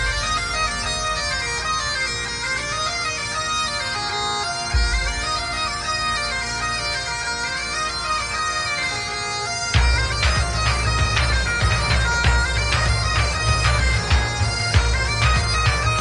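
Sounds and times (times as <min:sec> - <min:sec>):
bagpipe music: 0:00.0 - 0:16.0
deep bass hit: 0:04.7 - 0:05.6.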